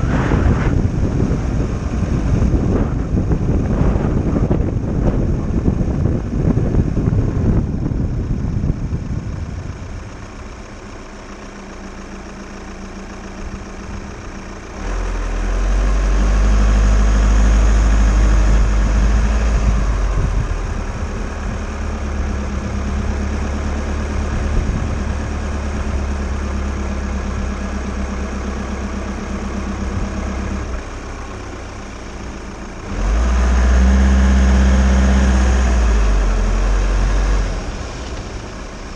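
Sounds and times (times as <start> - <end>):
wind buffeting microphone: 0.0 - 10.3, 16.4 - 26.5
van engine idling: 0.0 - 38.9.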